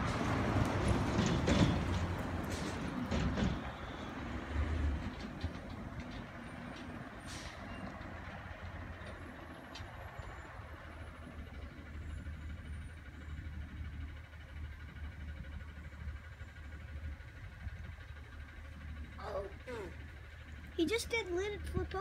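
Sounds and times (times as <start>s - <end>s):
diesel truck engine running: 0.0s - 22.0s
air brake hiss: 7.2s - 7.7s.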